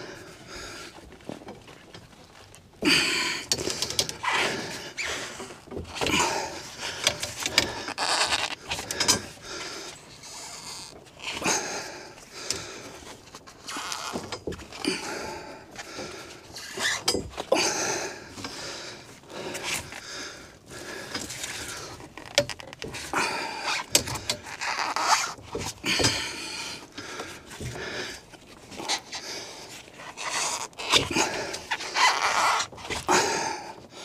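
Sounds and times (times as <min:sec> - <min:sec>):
foam tubing scraping on wood: 0:06.9 - 0:09.2, 0:23.7 - 0:25.8, 0:28.6 - 0:33.1.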